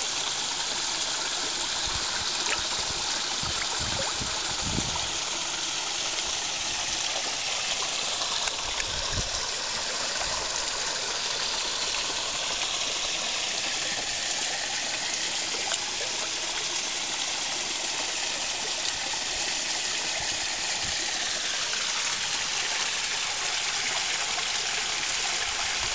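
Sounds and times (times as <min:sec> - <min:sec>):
waterfall splashing into pond: 0:00.0 - 0:25.9.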